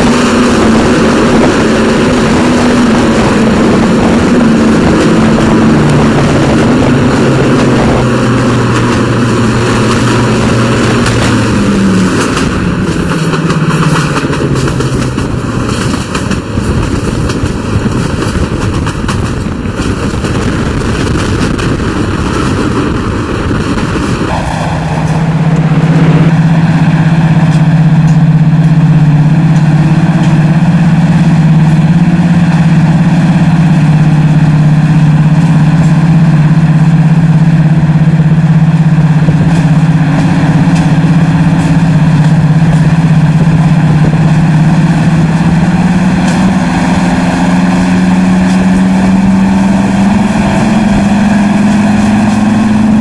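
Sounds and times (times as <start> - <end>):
locomotive engines droning: 0.0 - 53.0.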